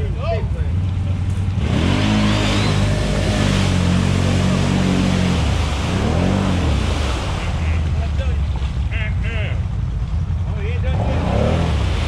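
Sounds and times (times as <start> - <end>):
atv engine revving: 0.7 - 12.0
mud and water splashing: 0.8 - 10.4, 11.0 - 12.0.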